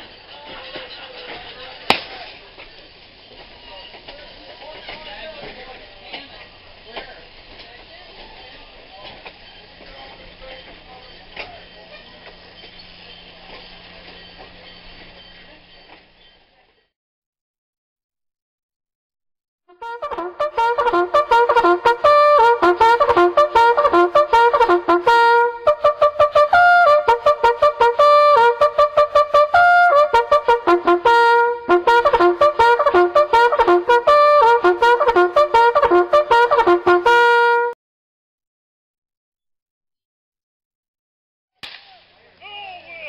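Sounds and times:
lively brass music: 19.7s - 37.8s.

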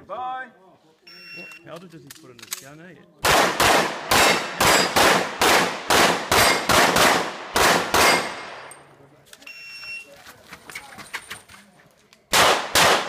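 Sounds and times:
pistol shots: 3.2s - 8.7s, 12.3s - 13.0s.

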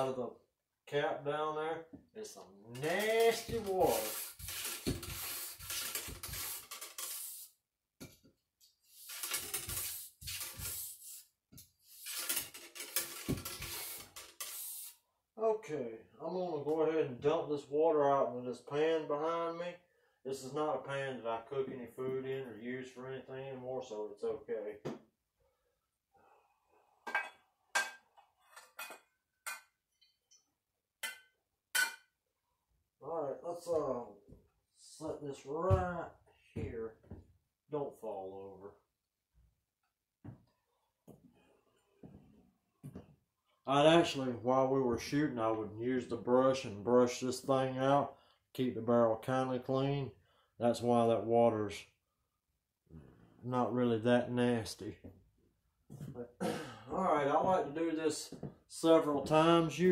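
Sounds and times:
bore brush scrubbing wet barrel: 2.8s - 7.6s, 8.9s - 11.3s, 11.9s - 15.0s.

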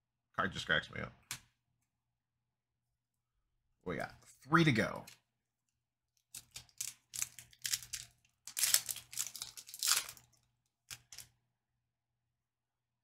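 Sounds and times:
wrapper tearing and crinkling: 6.3s - 11.2s.

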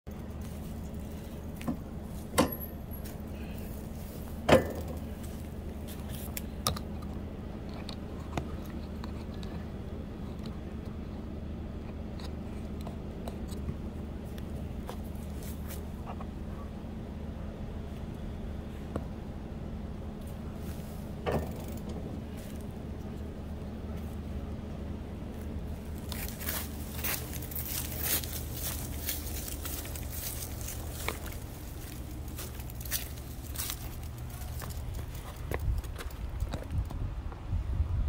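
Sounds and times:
low mechanical hum: 0.1s - 38.0s
sharp clicks and knocks: 21.2s - 22.2s.

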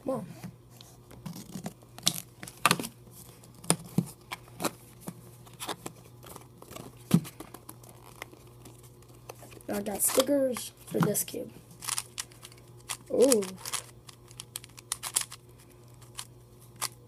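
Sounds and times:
plastic packaging being opened: 5.4s - 10.6s.

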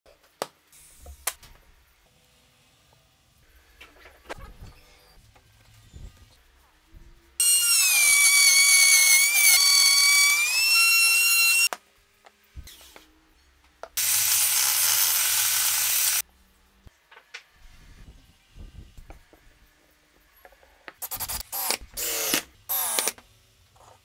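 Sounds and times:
power tool motor whine: 7.4s - 11.7s, 14.0s - 16.2s
rough hissing tool noise: 14.0s - 16.2s.

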